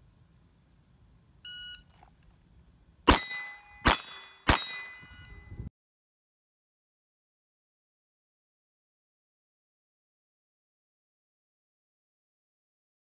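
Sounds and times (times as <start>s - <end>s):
steel plate targets ringing: 3.1s - 5.7s.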